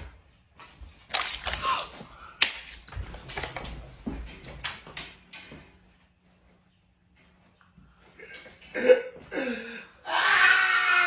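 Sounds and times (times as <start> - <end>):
breathing sounds: 9.3 - 10.0.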